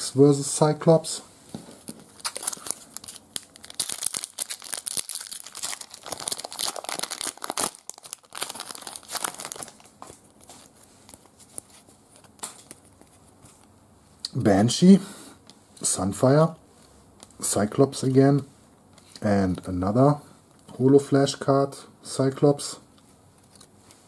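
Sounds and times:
foil wrapper tearing and crinkling: 0:02.2 - 0:10.4.

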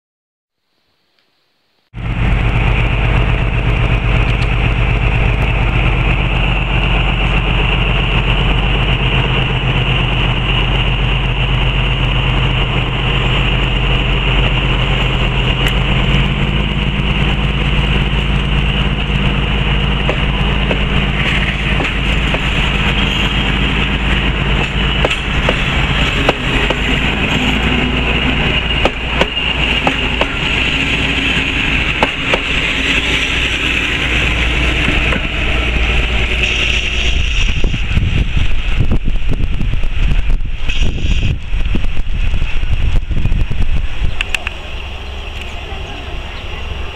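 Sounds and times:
diesel locomotive engine running: 0:02.0 - 0:46.9
wheels clacking over rail joints: 0:02.3 - 0:36.6.

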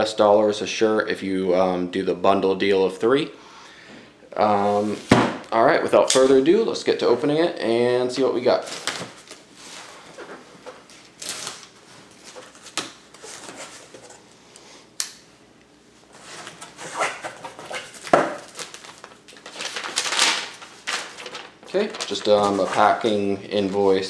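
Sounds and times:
knife slitting packing tape: 0:11.2 - 0:11.7
tissue paper rustling: 0:16.2 - 0:24.0.

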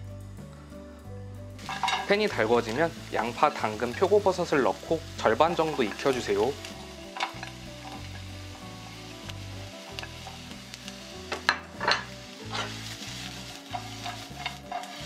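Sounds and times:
utensil scraping a pan: 0:01.6 - 0:04.1, 0:11.3 - 0:15.0
vegetables sizzling in a frying pan: 0:01.6 - 0:15.0.

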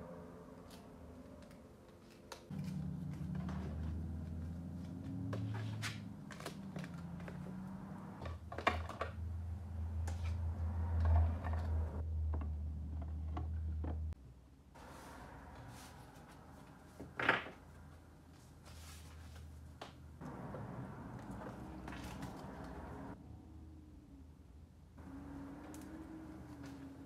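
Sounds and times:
cards and plastic clicking and rustling: 0:04.8 - 0:09.2, 0:21.2 - 0:22.9.

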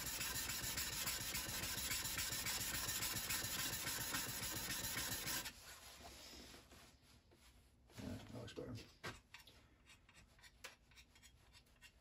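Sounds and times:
steel scraper on sharpening stone: 0:00.0 - 0:05.5.

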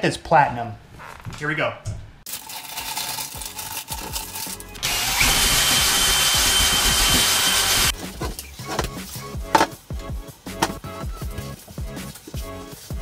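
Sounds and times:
drill mixing paddle whining: 0:04.8 - 0:08.0.

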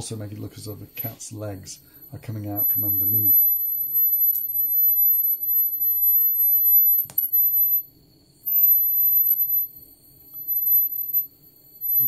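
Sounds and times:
high-pitched whine: 0:00.0 - 0:12.0
sharp click: 0:07.0 - 0:07.4.

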